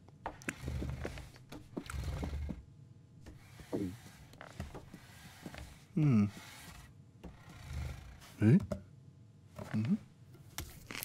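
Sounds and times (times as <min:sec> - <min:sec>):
man humming low: 0:06.0 - 0:06.4.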